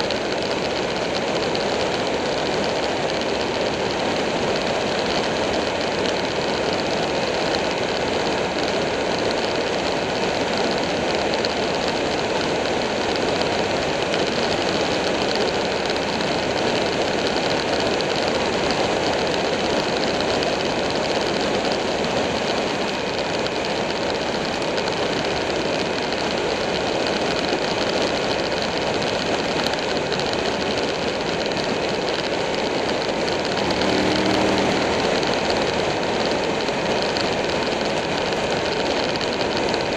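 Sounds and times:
motorcycle engine droning: 29.9 - 39.9.

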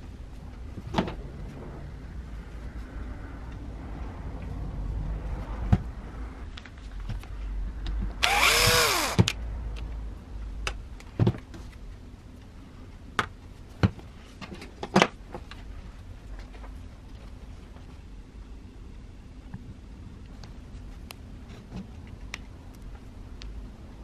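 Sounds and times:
cordless drill motor whine: 8.2 - 9.3.

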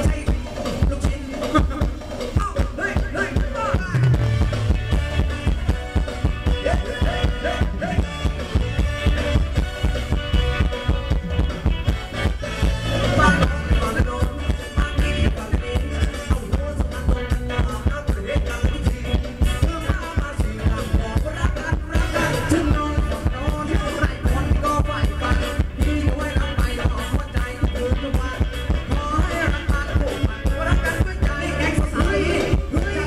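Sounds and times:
live band dance music over pa: 0.0 - 33.0.

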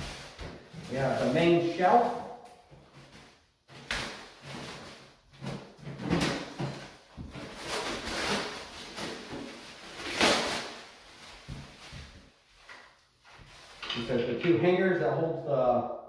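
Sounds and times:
plastic shrink-wrap crinkling: 6.2 - 12.3.

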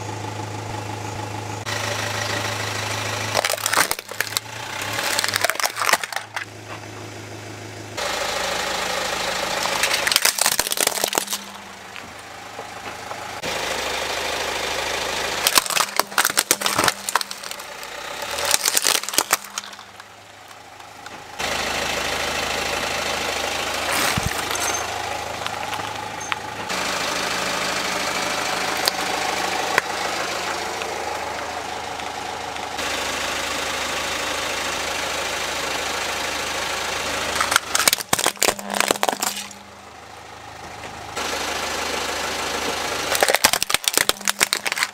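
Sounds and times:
car engine idling: 0.0 - 44.9
plastic toys crushed by tyre: 3.2 - 6.5, 9.5 - 12.2, 15.4 - 21.2, 23.8 - 26.0, 37.2 - 39.7, 43.0 - 44.9.

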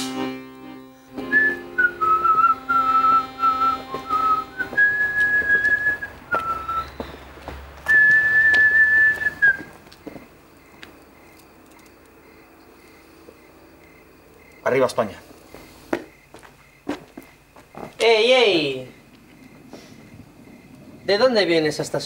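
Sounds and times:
person whistling slow tune: 1.2 - 7.2, 7.8 - 9.7.

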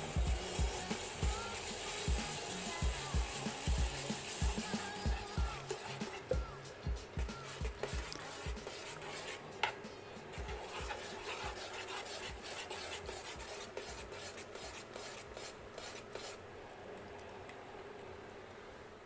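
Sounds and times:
water boiling: 0.0 - 9.5, 10.4 - 15.0
spoon scraping in a pot: 5.5 - 6.3, 7.4 - 9.8, 10.4 - 16.4.

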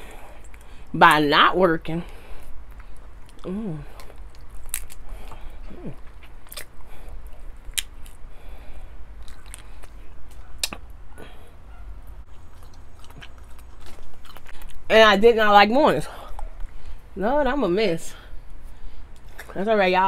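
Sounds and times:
chewing seafood: 0.0 - 0.9, 2.0 - 14.9, 18.3 - 19.6.

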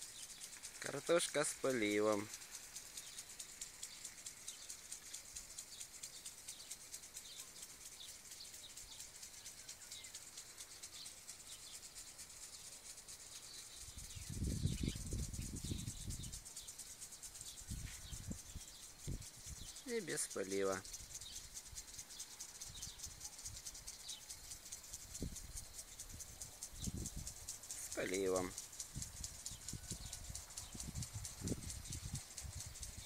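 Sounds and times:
bird chirps: 0.0 - 25.0
insect chirring: 0.0 - 33.0.

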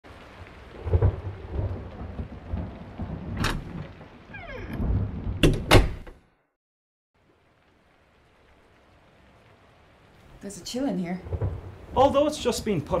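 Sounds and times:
rain: 0.0 - 5.8, 7.2 - 13.0
rolling thunder rumbles: 0.1 - 6.0, 11.1 - 13.0
sharp thunder cracks: 0.7 - 6.0, 11.2 - 12.7.

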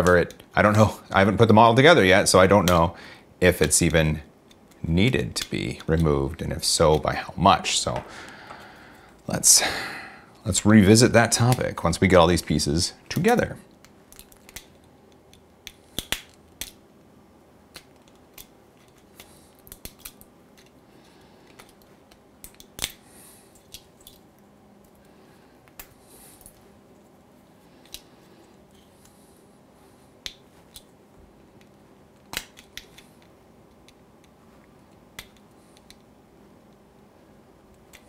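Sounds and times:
plastic clicks and snaps: 13.8 - 16.8, 31.6 - 36.1.

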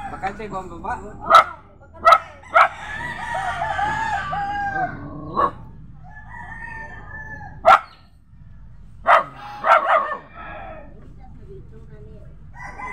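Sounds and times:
rooster crowing: 0.0 - 0.7, 2.1 - 7.8, 9.1 - 11.0, 12.5 - 12.9
dog barking: 1.2 - 2.9, 4.8 - 5.7, 7.5 - 8.1, 9.0 - 10.6.

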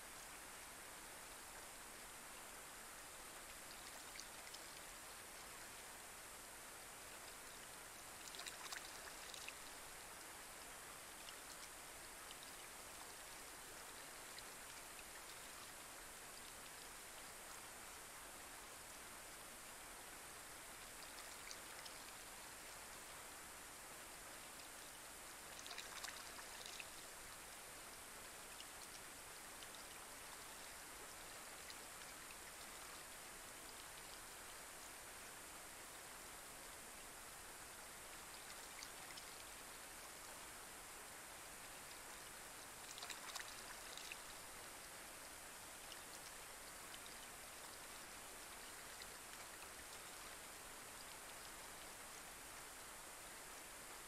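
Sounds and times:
light rain on a pond: 0.0 - 54.0
water drips: 8.2 - 9.8, 25.4 - 27.1, 42.7 - 44.4.

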